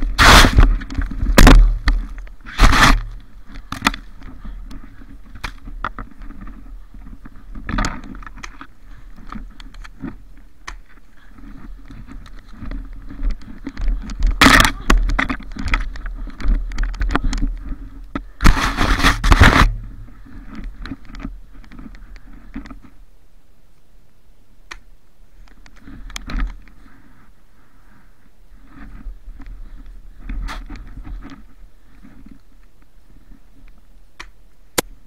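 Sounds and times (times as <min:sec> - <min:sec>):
camera rubbing on clothing: 0:00.0 - 0:00.9, 0:02.4 - 0:03.2, 0:17.8 - 0:21.1
footsteps crunching through snow: 0:18.4 - 0:20.4.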